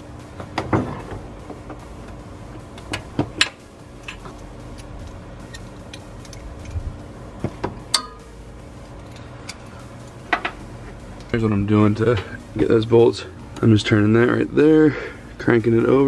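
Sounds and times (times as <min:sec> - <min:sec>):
hand tools clicking on metal: 0:02.8 - 0:06.8, 0:09.0 - 0:10.6.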